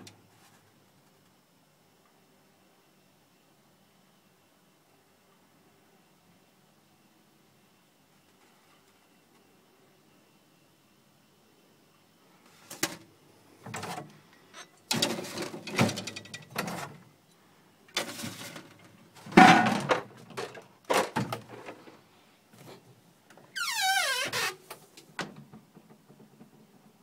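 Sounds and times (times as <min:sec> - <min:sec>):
bottles rattling on wire shelves: 0:14.9 - 0:17.0, 0:18.0 - 0:21.6
fridge door squeaking shut: 0:23.5 - 0:24.6.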